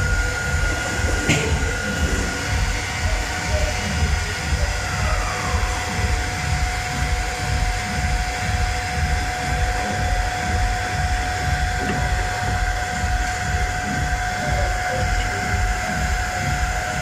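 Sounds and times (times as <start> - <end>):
constant high whine: 0.0 - 17.0
low mechanical rumble: 0.0 - 17.0.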